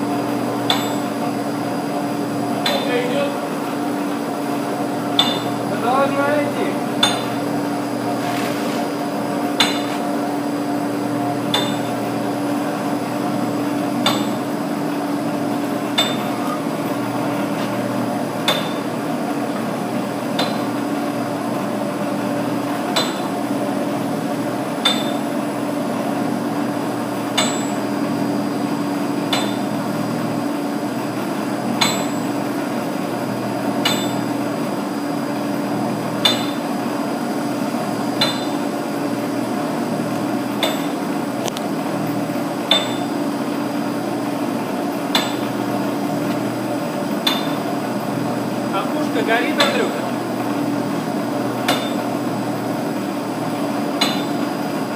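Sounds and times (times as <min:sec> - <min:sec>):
sharp knocks of pipe on rollers: 0:00.6 - 0:01.2, 0:02.6 - 0:02.9, 0:05.1 - 0:05.6, 0:07.0 - 0:07.4, 0:09.6 - 0:10.1, 0:11.5 - 0:12.1, 0:14.0 - 0:14.5, 0:15.9 - 0:16.6, 0:18.4 - 0:19.0, 0:20.3 - 0:20.8, 0:22.9 - 0:23.4, 0:24.8 - 0:25.4, 0:27.3 - 0:27.8, 0:29.3 - 0:29.8, 0:31.8 - 0:32.3, 0:33.8 - 0:34.3, 0:36.2 - 0:36.7, 0:38.2 - 0:38.7, 0:40.6 - 0:41.0, 0:42.7 - 0:43.1, 0:45.1 - 0:45.6, 0:47.2 - 0:47.7, 0:51.6 - 0:52.1, 0:54.0 - 0:54.5.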